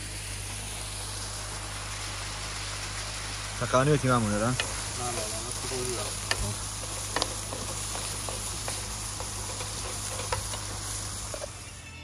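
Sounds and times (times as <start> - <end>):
food sizzling in a pan: 0.0 - 12.0
small pops and crackles: 4.4 - 11.6.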